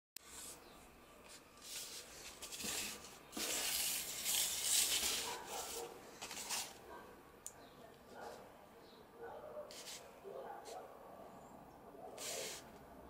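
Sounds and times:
cardboard box rubbing and rustling: 1.6 - 6.8.

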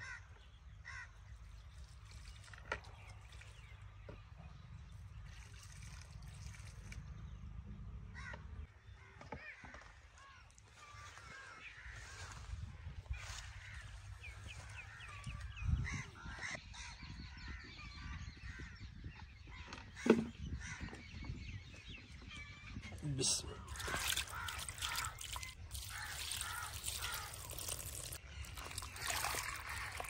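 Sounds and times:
birds calling: 8.1 - 30.0.

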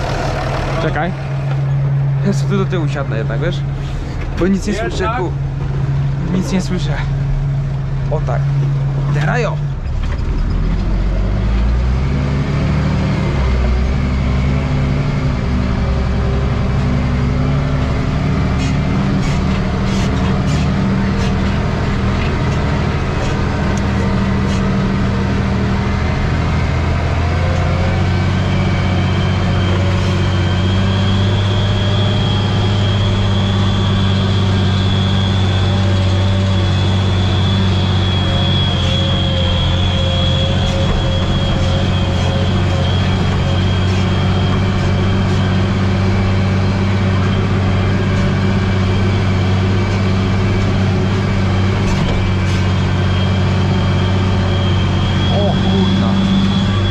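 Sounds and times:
tractor engine running: 0.0 - 56.9
rattles: 8.6 - 11.1
high steady whine: 29.5 - 56.9.

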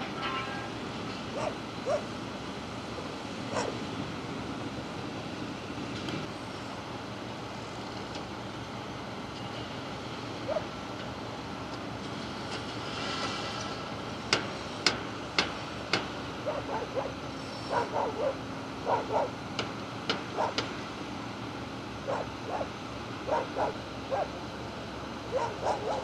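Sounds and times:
low machinery hum: 0.0 - 26.0
dog yapping: 1.3 - 2.1, 3.5 - 3.8, 10.5 - 10.7, 16.4 - 19.3, 20.4 - 20.6, 22.1 - 22.7, 23.3 - 24.4, 25.3 - 26.0.

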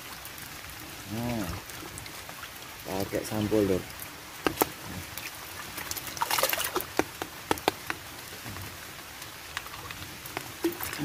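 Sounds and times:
water splashing and dripping: 0.0 - 11.0
small taps: 4.4 - 4.8, 6.8 - 8.1.

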